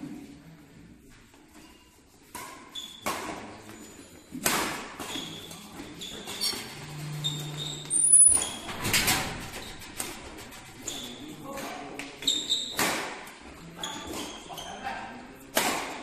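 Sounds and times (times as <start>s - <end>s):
shoes squeaking on court: 1.5s - 8.8s, 9.6s - 14.9s
rackets hitting shuttlecock: 2.3s - 3.6s, 4.3s - 5.4s, 11.6s - 14.5s, 15.5s - 16.0s.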